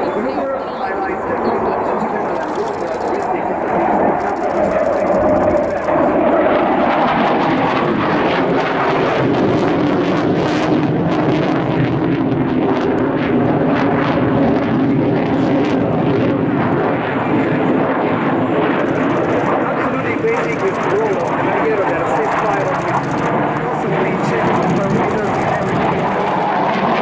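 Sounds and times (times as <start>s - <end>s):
jet engines rumbling in flight: 0.0s - 27.0s.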